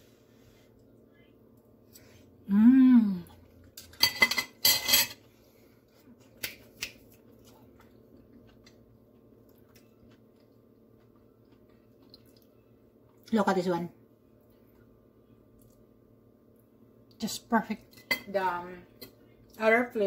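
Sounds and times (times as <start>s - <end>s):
person humming mmm: 2.4s - 3.5s
cutlery clattering on a plate: 4.0s - 5.2s.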